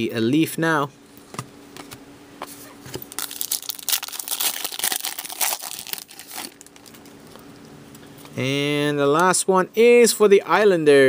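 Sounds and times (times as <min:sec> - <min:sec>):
foil wrapper crinkling and tearing: 0:03.0 - 0:07.1.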